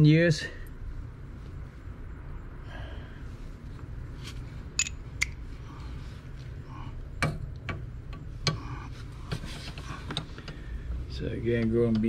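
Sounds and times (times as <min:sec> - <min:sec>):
low steady hum: 0:00.0 - 0:12.0
metal clicks and clinks: 0:04.8 - 0:05.3.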